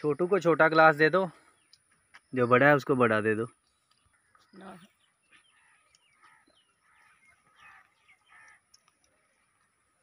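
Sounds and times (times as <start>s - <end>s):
faint bird calls and chirps: 0.0s - 10.0s.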